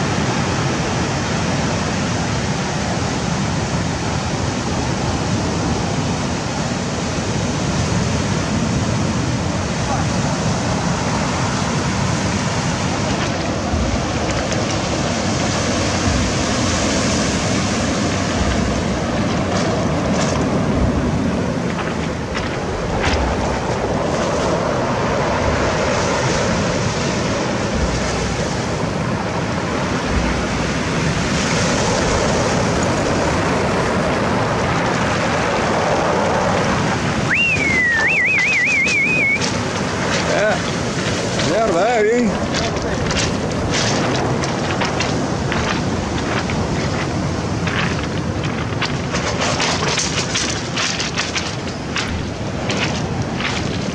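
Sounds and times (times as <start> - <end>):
sea surf washing in: 0.0 - 53.9
wind buffeting microphone: 0.0 - 53.9
short high warbling whistle: 37.3 - 39.5.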